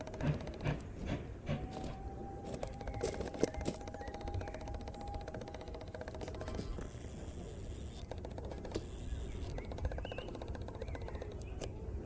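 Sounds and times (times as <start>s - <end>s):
low train rumble: 0.0s - 4.1s
train wheels clicking on track: 0.0s - 6.7s.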